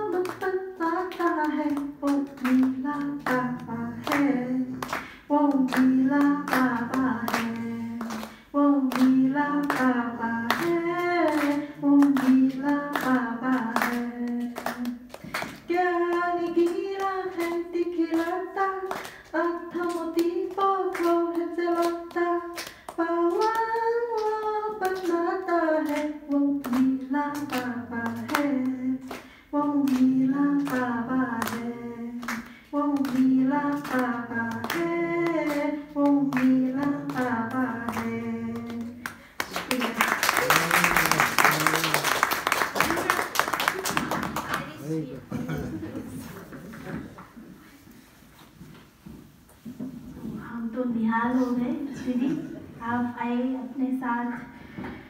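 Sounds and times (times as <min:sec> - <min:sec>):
woman singing devotional song: 0:00.0 - 0:40.4
hand claps: 0:00.1 - 0:25.2, 0:25.8 - 0:44.8.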